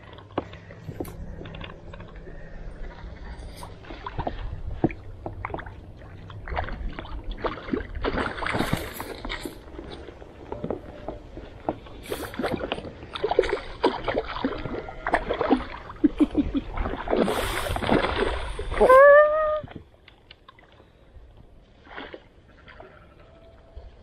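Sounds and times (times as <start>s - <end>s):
water splashing: 0.0s - 21.0s, 21.6s - 24.0s.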